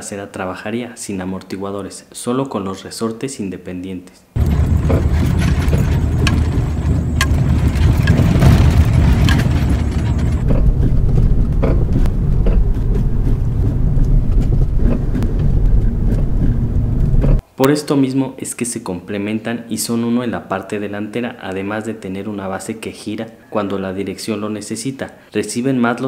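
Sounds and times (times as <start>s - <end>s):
car rumbling over rough ground: 4.4s - 17.4s
suspension knocks and clunks: 4.4s - 17.4s.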